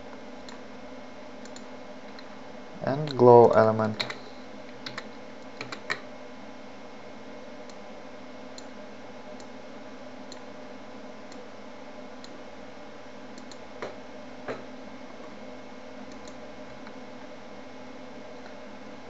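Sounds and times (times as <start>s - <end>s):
keyboard and mouse clicks: 3.0s - 4.2s, 4.8s - 6.0s.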